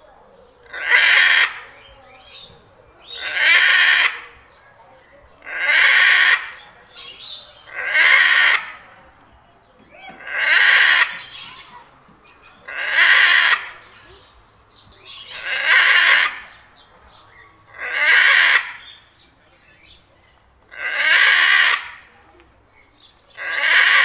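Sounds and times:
parrot squawking: 10.1 - 11.8, 15.1 - 16.5, 17.7 - 19.0.

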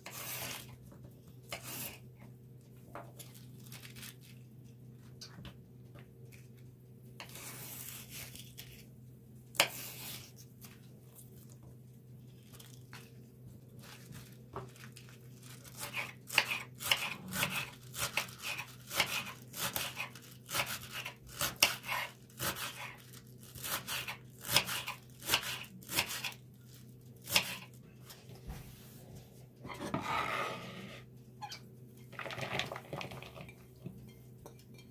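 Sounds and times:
knife slicing cabbage on board: 1.5 - 2.0, 15.8 - 23.0, 23.6 - 26.4, 27.2 - 27.7.

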